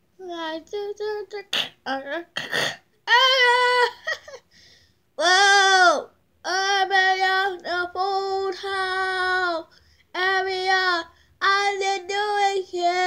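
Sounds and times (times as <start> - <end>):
child singing long notes: 5.2 - 13.0.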